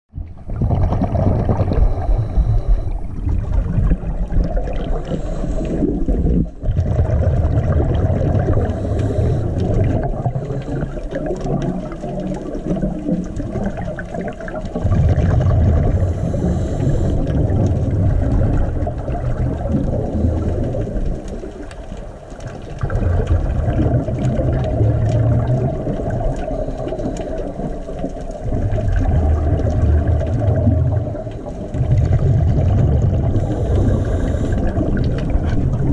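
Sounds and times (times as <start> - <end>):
underwater rumbling gurgle: 0.1 - 35.9
faint ticks: 19.7 - 23.4, 24.1 - 28.4.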